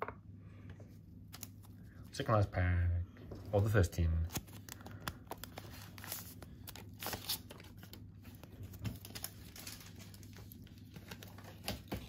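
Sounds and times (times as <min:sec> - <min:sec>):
foil wrapper tearing and crinkling: 0:04.2 - 0:12.0.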